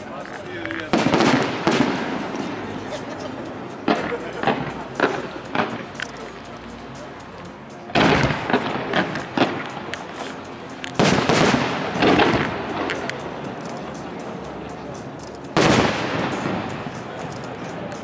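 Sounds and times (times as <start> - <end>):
sharp firework cracks: 0.9 - 2.3, 8.0 - 9.9, 11.0 - 13.0, 15.6 - 16.7
fireworks booming: 0.9 - 2.6, 11.0 - 12.8.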